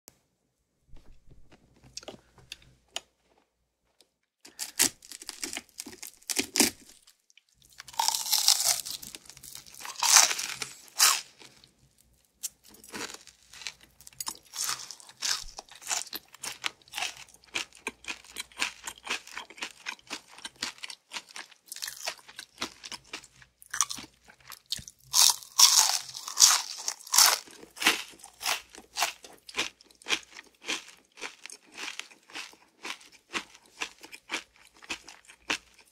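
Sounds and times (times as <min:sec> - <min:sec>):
crackly chewing: 0:01.4 - 0:35.9
crunchy bites of fried chicken: 0:04.4 - 0:35.9.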